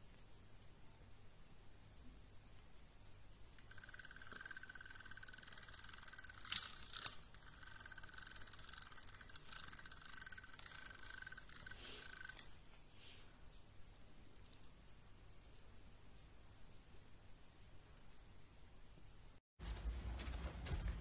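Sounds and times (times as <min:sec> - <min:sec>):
toy motor whirring: 0:03.6 - 0:12.6.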